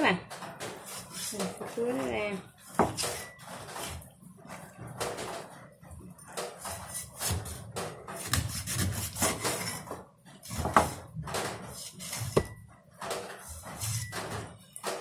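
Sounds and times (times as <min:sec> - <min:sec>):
blade scraping board: 0:06.6 - 0:12.6.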